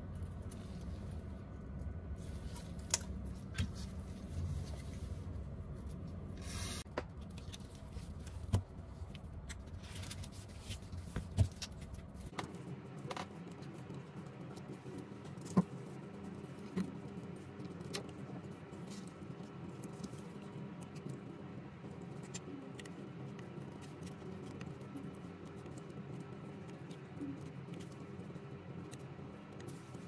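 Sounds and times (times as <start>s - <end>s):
low steady hum: 0.0s - 30.0s.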